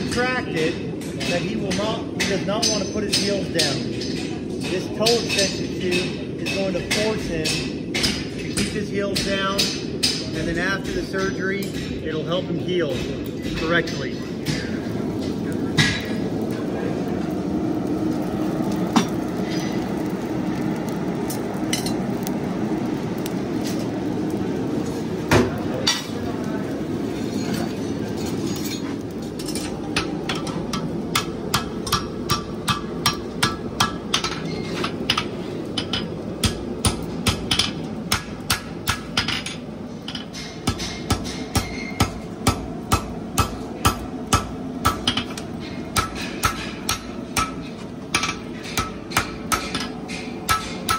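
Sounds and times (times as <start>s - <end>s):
forge burning with rush: 0.0s - 50.9s
hammer striking steel on anvil: 1.0s - 12.2s, 28.5s - 50.9s.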